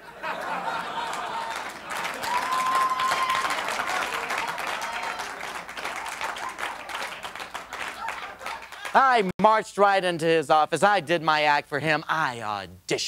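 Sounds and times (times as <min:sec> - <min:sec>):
audience applauding: 0:00.2 - 0:09.3.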